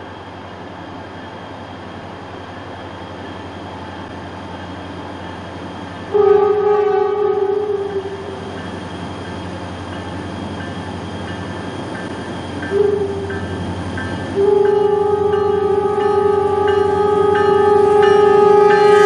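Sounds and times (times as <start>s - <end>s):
diesel locomotive engine rumbling: 0.0s - 19.0s
train horn blast: 6.1s - 8.4s, 12.7s - 13.4s, 14.4s - 19.0s.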